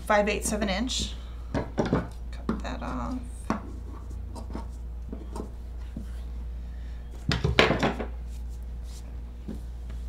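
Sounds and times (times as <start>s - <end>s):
knocks and rustles on wooden table: 1.6s - 2.6s, 7.3s - 8.2s.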